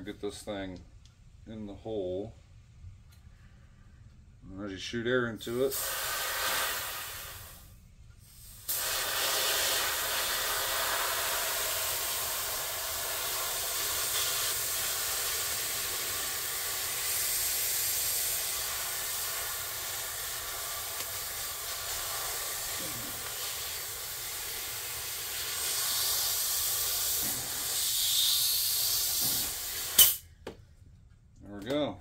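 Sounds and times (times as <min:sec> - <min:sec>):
compressed air hissing: 0:05.6 - 0:30.3.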